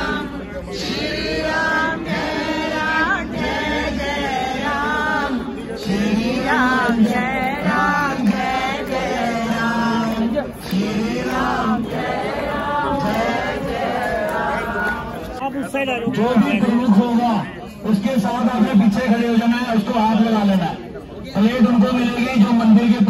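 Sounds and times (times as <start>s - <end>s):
group singing a chant in unison: 0.0s - 15.4s.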